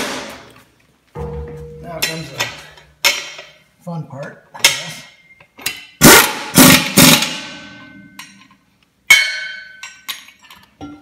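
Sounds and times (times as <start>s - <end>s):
brake drum ringing: 1.2s - 2.7s.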